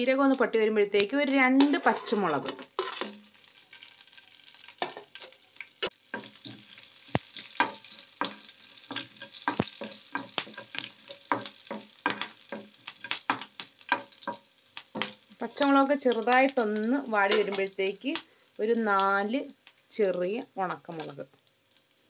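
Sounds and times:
seeds sizzling and popping in oil: 0.0s - 22.0s
wooden spatula scraping pan: 1.6s - 3.2s.

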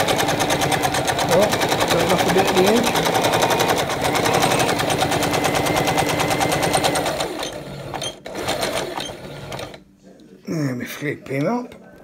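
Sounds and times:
sewing machine stitching: 0.0s - 9.8s.

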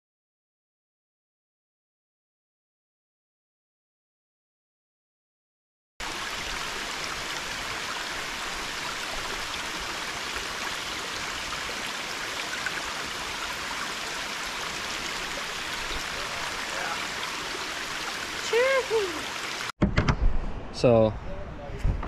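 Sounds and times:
stream water rushing: 6.0s - 19.7s.

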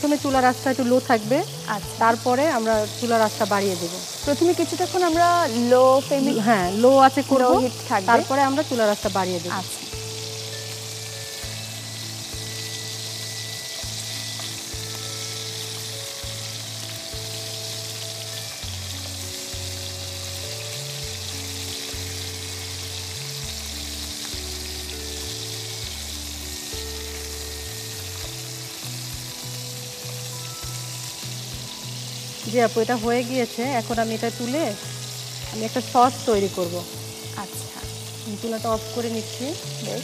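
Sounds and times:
chicken sizzling in oil: 0.0s - 40.0s
slow low background music: 0.0s - 40.0s.

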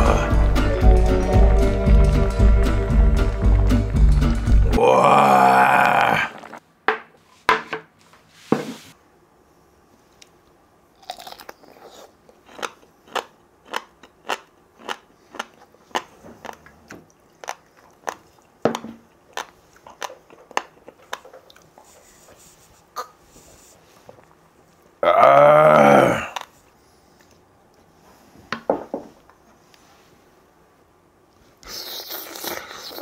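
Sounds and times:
person chewing and crunching: 11.0s - 21.8s.

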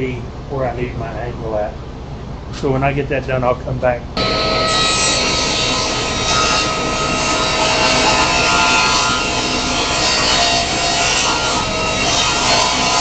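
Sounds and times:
table saw cutting wood: 4.2s - 13.0s.

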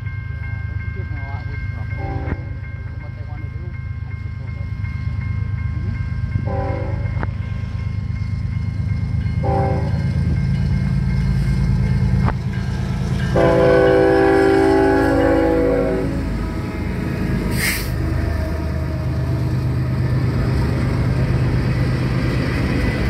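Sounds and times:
locomotive engines rumbling: 0.0s - 23.0s
locomotive air horn blasts: 6.5s - 7.1s, 9.4s - 10.0s, 13.3s - 16.2s.

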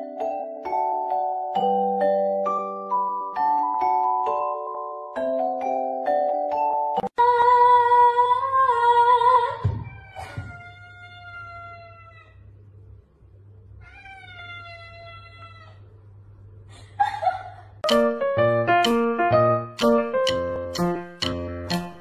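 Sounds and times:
music: 0.0s - 7.1s, 17.8s - 22.0s
cat meowing: 9.7s - 12.5s, 13.8s - 15.9s.

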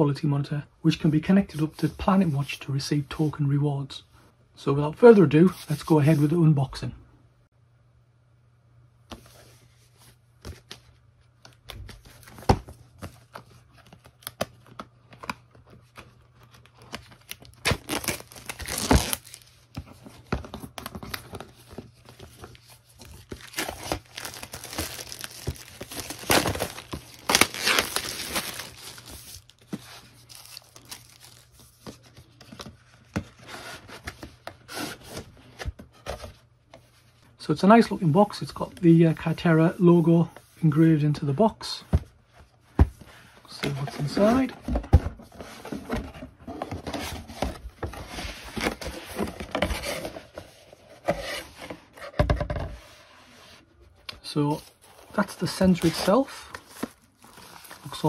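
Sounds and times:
shrink-wrap tearing and crinkling: 16.8s - 19.5s, 23.0s - 29.6s, 30.2s - 31.6s, 55.7s - 58.0s.

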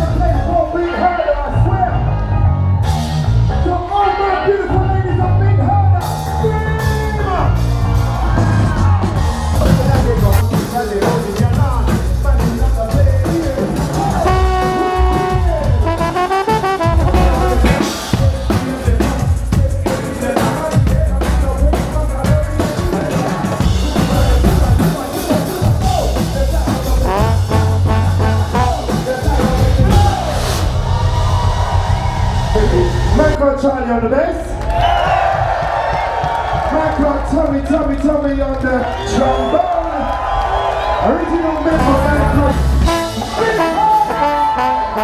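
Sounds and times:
live ska band playing: 4.6s - 33.4s, 41.0s - 45.0s
trombone: 14.0s - 18.4s, 26.7s - 30.4s, 41.7s - 45.0s.

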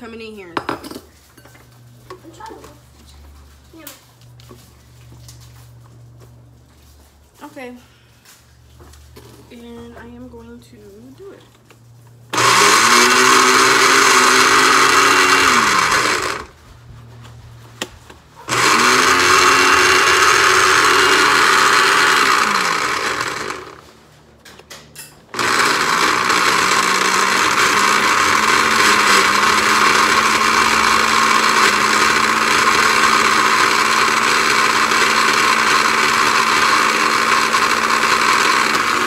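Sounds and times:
blender motor running: 12.3s - 16.6s, 18.5s - 23.9s, 25.3s - 39.0s.

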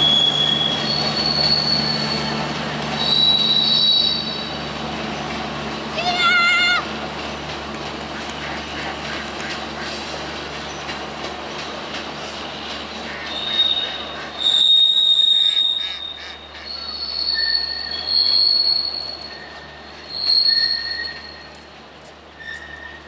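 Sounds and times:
train wheels squealing: 0.0s - 5.3s, 12.1s - 23.0s
wheels rumbling on track: 0.0s - 23.0s.

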